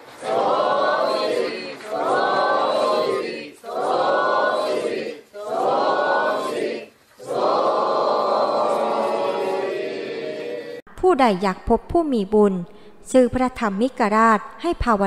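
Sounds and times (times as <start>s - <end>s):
group chanting in unison: 0.0s - 10.8s.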